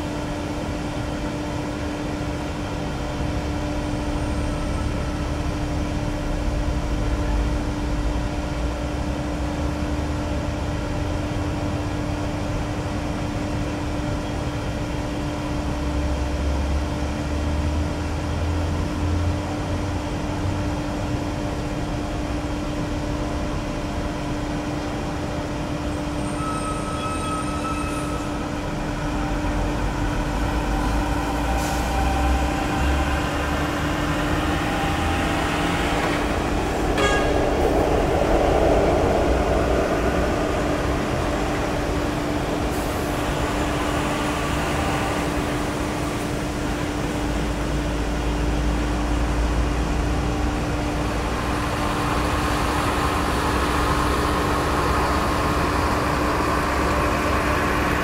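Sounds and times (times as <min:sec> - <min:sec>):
jet engines rumbling drone: 0:28.2 - 0:58.0.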